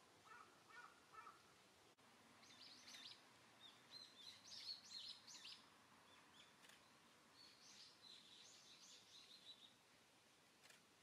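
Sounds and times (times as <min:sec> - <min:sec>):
low background hiss: 0:00.0 - 0:11.0
songbird chirping: 0:02.3 - 0:10.0.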